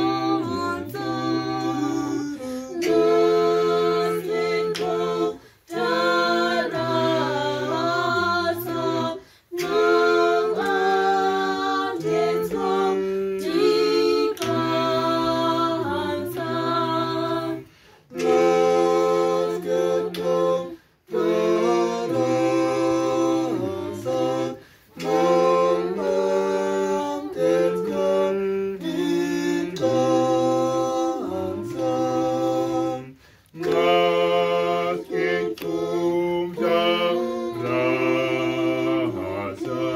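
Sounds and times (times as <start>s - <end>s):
choir singing a cappella: 0.0s - 39.9s.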